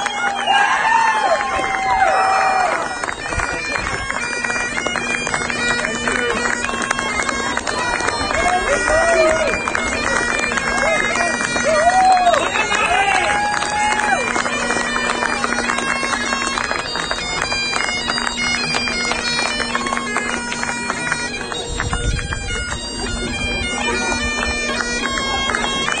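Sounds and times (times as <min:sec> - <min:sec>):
bagpipe music: 0:00.0 - 0:26.0.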